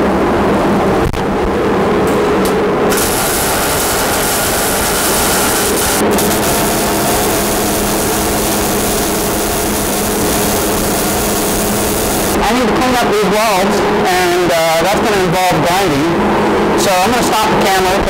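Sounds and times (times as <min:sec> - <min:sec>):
welding arc sizzling: 0:02.9 - 0:12.6.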